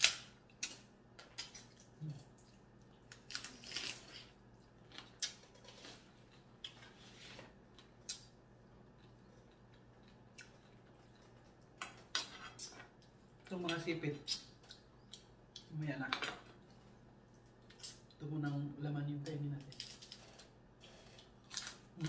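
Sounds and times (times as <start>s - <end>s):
crab shell cracking: 19.6s - 20.5s.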